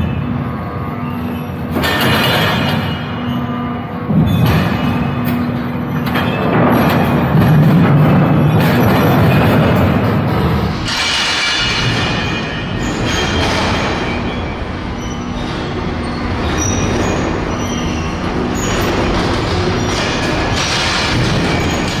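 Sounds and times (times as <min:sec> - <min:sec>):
high-pitched wheel squeals: 0:00.0 - 0:06.5, 0:10.9 - 0:19.1
steel wheels rumbling on track: 0:00.0 - 0:22.0.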